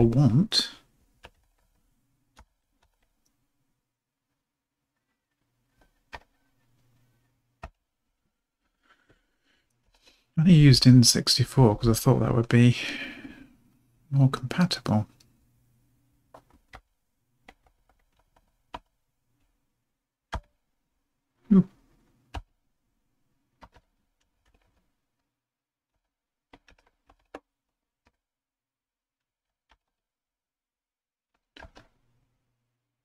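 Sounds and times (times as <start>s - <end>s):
computer keyboard typing: 1.2s - 3.2s, 23.6s - 24.8s, 26.0s - 27.5s.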